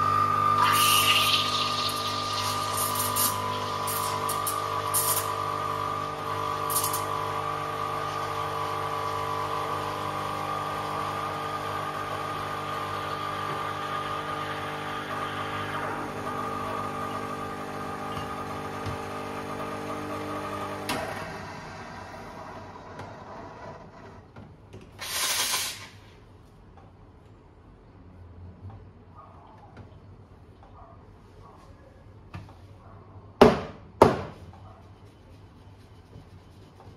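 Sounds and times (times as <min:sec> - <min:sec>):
espresso machine pump humming: 0:00.0 - 0:21.2.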